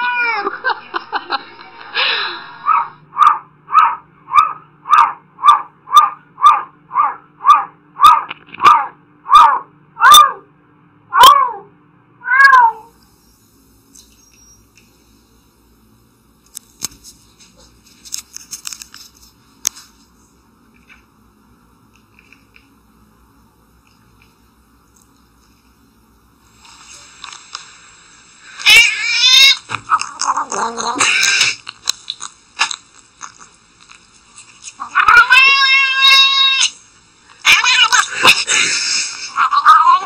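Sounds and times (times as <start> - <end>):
cat meowing: 0.0 - 0.5, 11.2 - 12.9, 28.6 - 31.6, 34.8 - 36.8, 37.4 - 38.1, 39.4 - 40.0.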